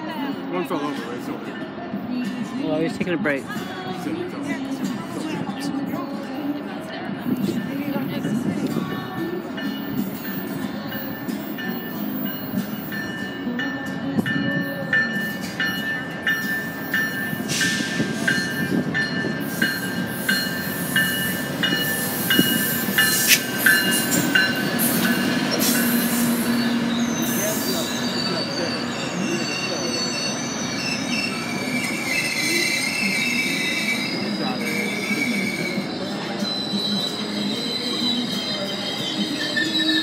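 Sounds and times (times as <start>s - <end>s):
low rumble of train: 0.0s - 40.0s
train bell ringing: 7.3s - 40.0s
train wheels squealing: 14.7s - 40.0s.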